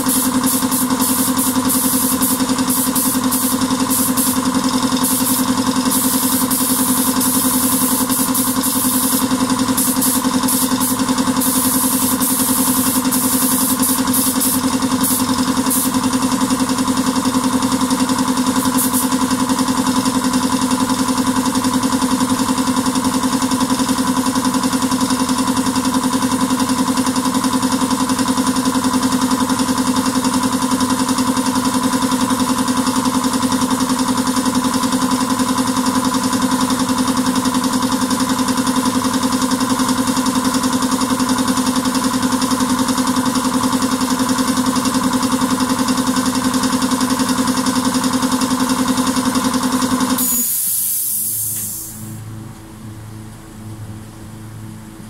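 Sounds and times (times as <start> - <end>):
spray gun air hiss: 0.0 - 16.3, 18.4 - 19.4, 50.1 - 52.2
machine drone: 49.8 - 55.0.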